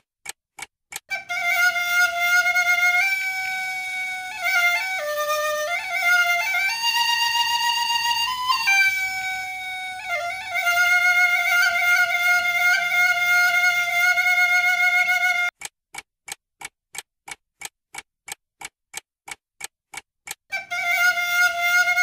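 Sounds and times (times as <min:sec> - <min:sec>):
short evenly spaced ticks: 0:00.0 - 0:01.2, 0:15.5 - 0:20.5
bamboo flute long note: 0:01.1 - 0:15.5, 0:20.5 - 0:22.0.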